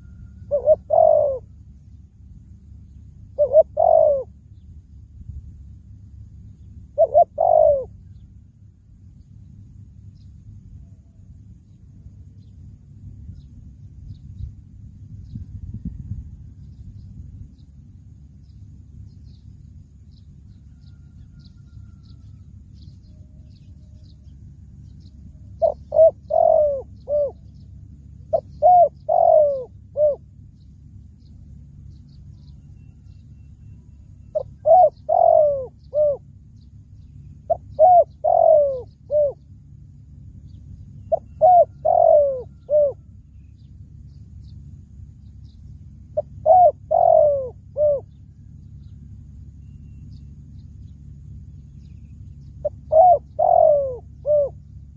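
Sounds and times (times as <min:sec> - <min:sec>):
dove cooing: 0:00.0 - 0:01.6, 0:03.3 - 0:04.4, 0:07.0 - 0:08.1, 0:25.3 - 0:27.6, 0:28.3 - 0:30.3, 0:34.3 - 0:36.3, 0:37.4 - 0:39.5, 0:41.1 - 0:43.2, 0:46.2 - 0:48.2, 0:52.6 - 0:54.7
low rumble: 0:09.2 - 0:21.5.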